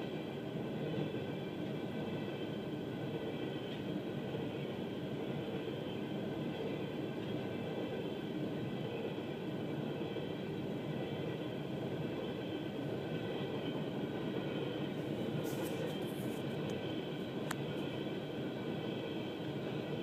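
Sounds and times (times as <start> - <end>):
train wheels rumbling: 0.0 - 20.0.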